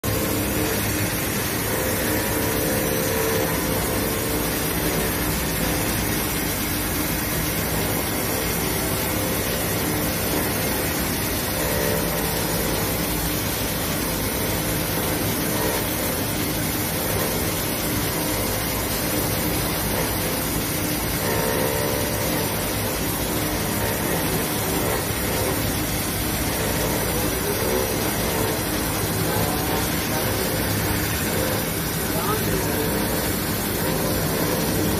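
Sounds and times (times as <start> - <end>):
faint machine hum: 0.0 - 34.9.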